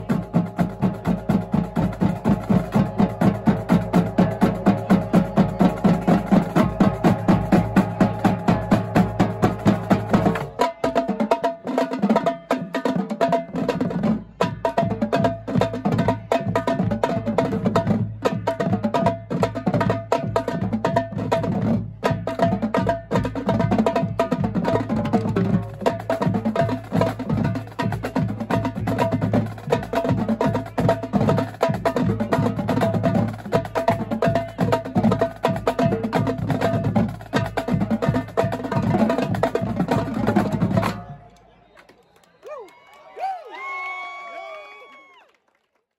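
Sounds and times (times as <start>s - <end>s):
bass drums: 0.0s - 10.9s
snare drums: 0.0s - 41.1s
tenor drums: 0.0s - 41.2s.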